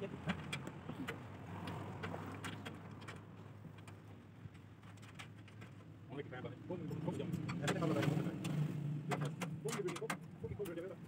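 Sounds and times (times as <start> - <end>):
light clicks and taps: 7.3 - 10.9.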